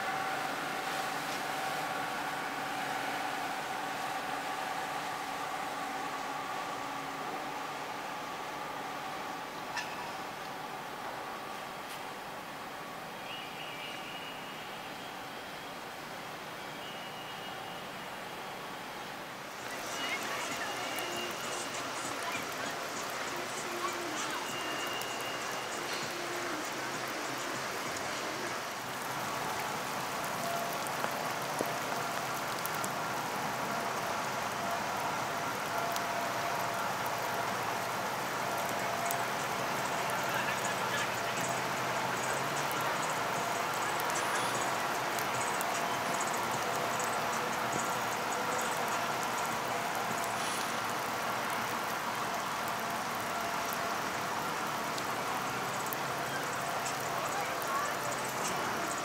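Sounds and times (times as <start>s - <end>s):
ship engine hum: 0.0s - 12.8s
rain falling on river: 0.0s - 59.0s.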